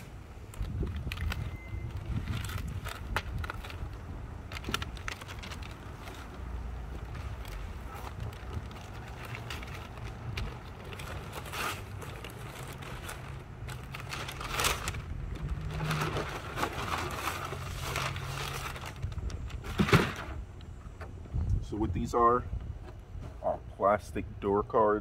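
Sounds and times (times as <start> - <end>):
packaging crinkling and tearing: 0.4 - 20.2.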